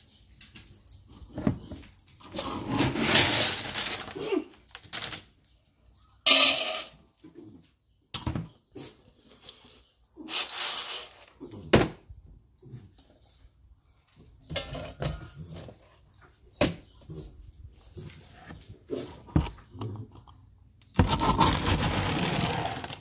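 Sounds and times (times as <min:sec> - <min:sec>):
handling knocks and scrapes: 0:20.9 - 0:23.0.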